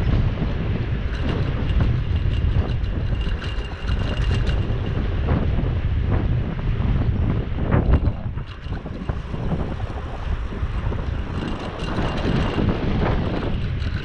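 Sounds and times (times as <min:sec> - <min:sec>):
tyres rumbling on road: 0:00.0 - 0:14.0
wind buffeting microphone: 0:00.0 - 0:14.0
light clicks and rattles: 0:01.0 - 0:05.1, 0:07.7 - 0:14.0.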